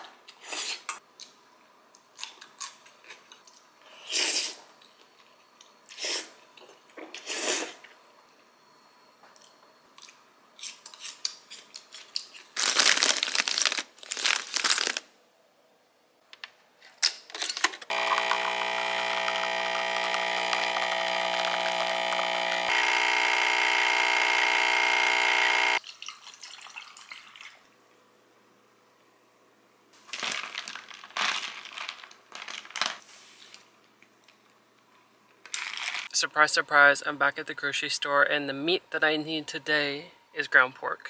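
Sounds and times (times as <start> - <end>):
espresso machine pump running: 17.9 - 25.8.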